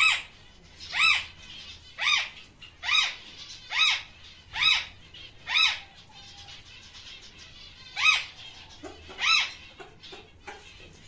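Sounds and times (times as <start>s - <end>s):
parrot squawking: 0.0s - 11.0s.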